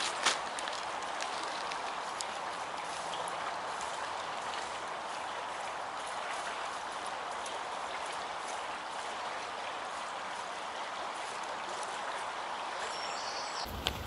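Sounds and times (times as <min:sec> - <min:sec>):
campfire coals crackling: 0:00.0 - 0:02.6, 0:13.6 - 0:14.0
river water flowing: 0:00.0 - 0:14.0.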